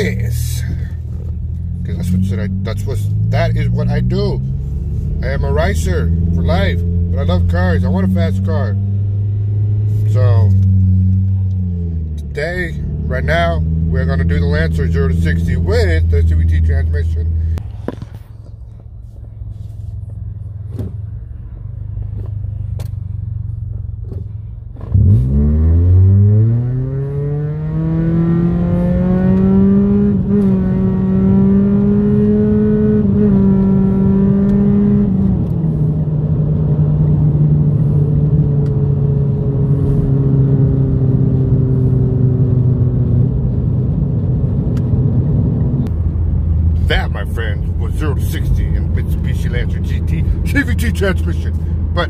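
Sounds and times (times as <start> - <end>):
car engine revving: 0.0 - 18.2, 20.7 - 52.0
road rumble: 0.0 - 52.0.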